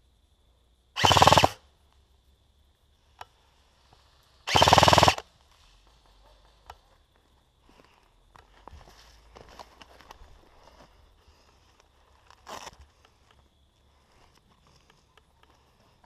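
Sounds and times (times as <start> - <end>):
airsoft rifle full-auto bursts: 1.0 - 1.6, 4.5 - 5.2.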